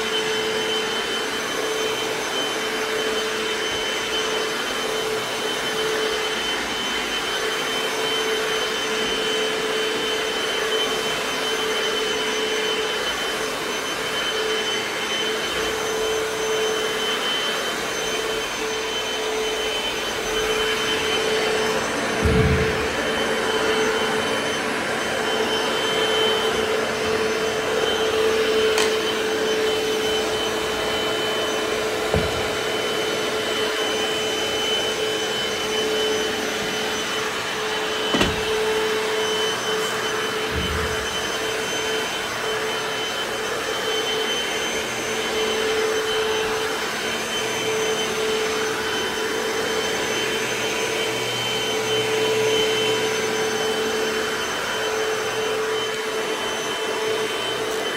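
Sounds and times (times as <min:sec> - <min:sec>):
floor washer motor humming: 0:00.0 - 0:57.9.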